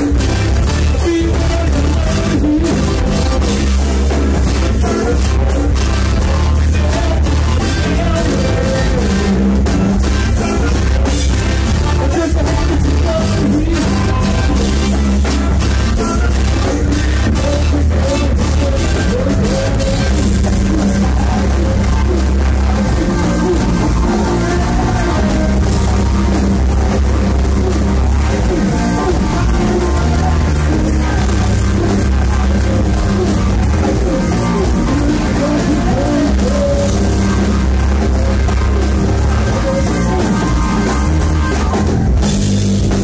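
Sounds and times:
congas: 0.0s - 43.0s
drum kit: 0.0s - 43.0s
electric guitar: 0.0s - 43.0s
heavy low bass: 0.0s - 43.0s.

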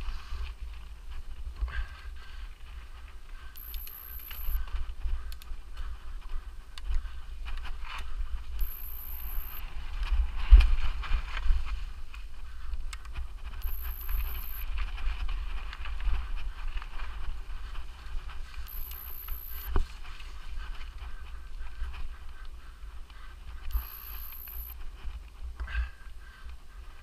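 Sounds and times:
high electronic tone: 3.6s - 4.6s, 8.6s - 9.6s, 13.6s - 14.6s, 18.7s - 19.7s, 23.7s - 24.8s
wind rumble on microphone: 9.6s - 13.6s, 14.6s - 18.7s.

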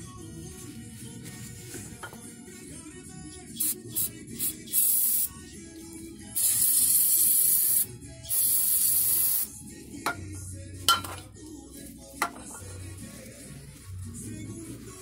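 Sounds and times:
aerosol can spraying: 3.6s - 5.3s, 6.4s - 9.5s.

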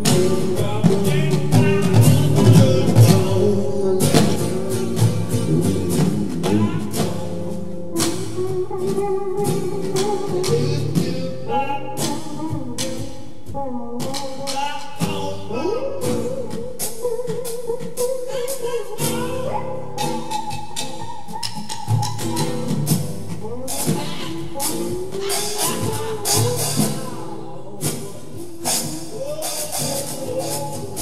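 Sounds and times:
song with singing and beat: 0.0s - 31.0s.

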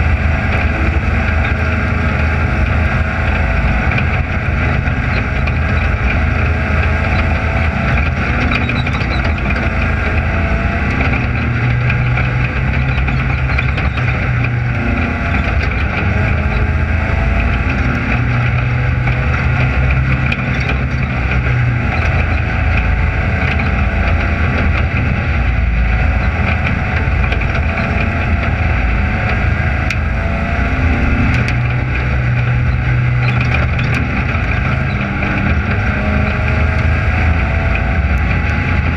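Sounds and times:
race car engine at low revs: 0.0s - 38.9s.

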